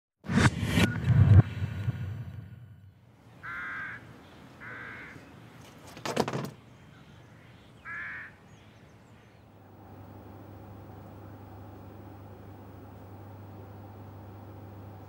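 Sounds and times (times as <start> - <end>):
crow cawing: 3.4 - 5.3, 7.0 - 8.5
loud clatter: 5.9 - 6.6.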